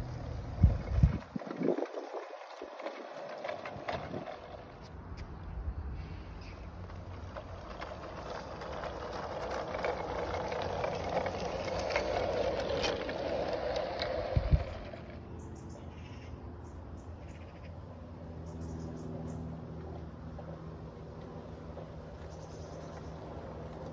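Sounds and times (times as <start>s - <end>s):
model train wheels rumbling: 0.0s - 4.9s, 6.7s - 15.2s.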